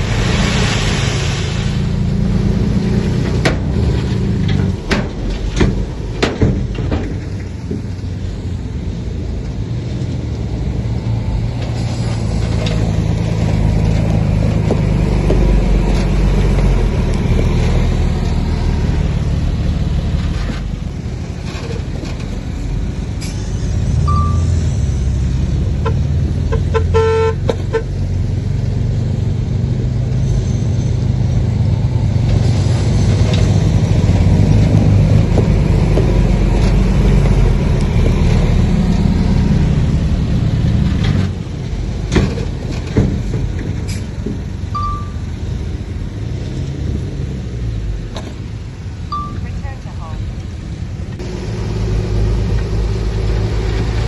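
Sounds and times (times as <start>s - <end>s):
heavy diesel engine running: 0.0s - 54.0s
horn short toots: 26.6s - 27.4s.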